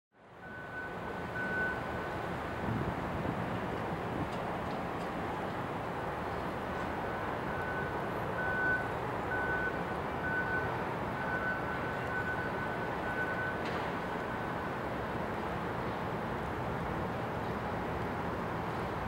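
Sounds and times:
wind: 0.1s - 19.0s.

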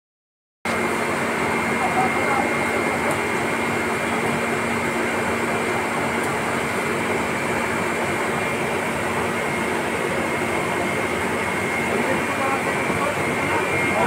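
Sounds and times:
machinery drone: 0.7s - 14.0s
thin high whine: 0.7s - 14.0s.

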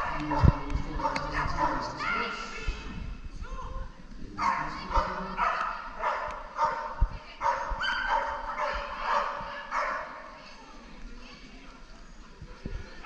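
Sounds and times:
dog barking: 4.4s - 10.2s.

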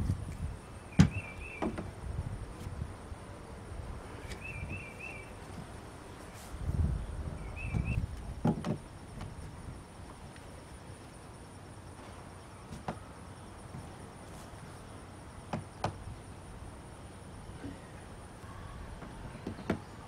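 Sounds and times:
low rumbling handling noise: 0.0s - 10.4s.

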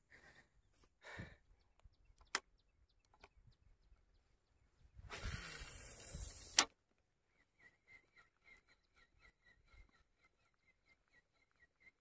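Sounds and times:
fishing line running off reel: 5.1s - 6.7s.

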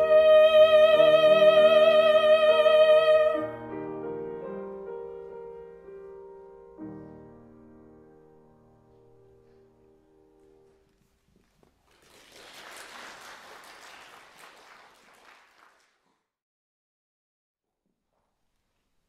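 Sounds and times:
audience clapping: 11.4s - 16.3s.

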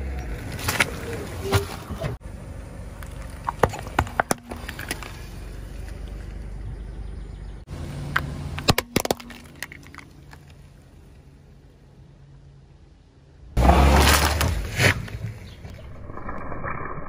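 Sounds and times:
low car rumble: 0.0s - 16.8s
plastic toys cracking under tyre: 8.6s - 10.6s.

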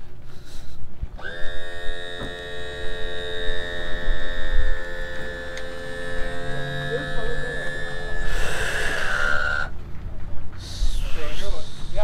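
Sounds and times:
high whine: 0.0s - 9.8s
loud electric hum: 0.0s - 11.8s
low tone: 1.2s - 10.5s.

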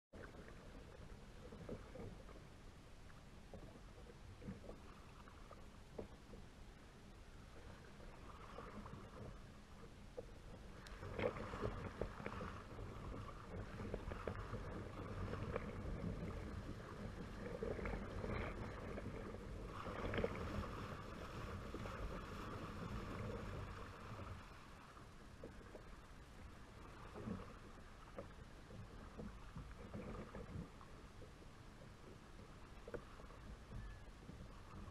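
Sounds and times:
waves slapping against hull: 0.2s - 6.6s, 7.4s - 34.9s
paddle blades splashing in water: 10.2s - 26.0s.

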